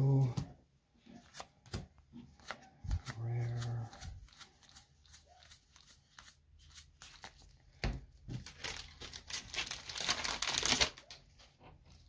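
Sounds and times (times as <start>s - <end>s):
foil wrapper tearing and crinkling: 8.4s - 11.2s.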